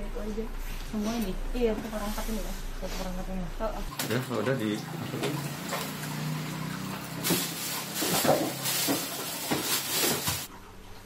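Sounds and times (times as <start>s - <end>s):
rustling bags and boxes: 7.1s - 10.5s.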